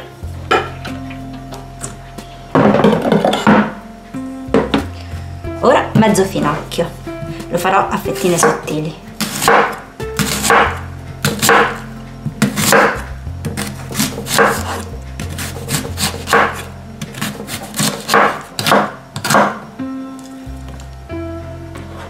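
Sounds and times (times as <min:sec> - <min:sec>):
knife slicing on a wooden board: 0:13.6 - 0:19.4.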